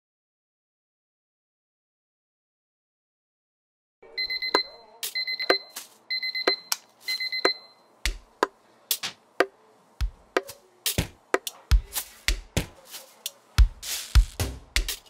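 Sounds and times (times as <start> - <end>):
electronic alarm beeping: 4.1 - 8.0
ticks: 6.5 - 15.0
sharp clicks and deep thumps beat: 8.0 - 8.5, 10.0 - 12.8, 13.6 - 15.0.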